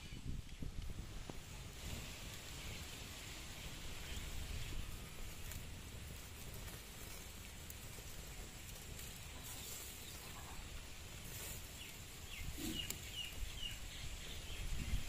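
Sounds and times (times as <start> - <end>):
bird chirping: 11.7 - 15.0.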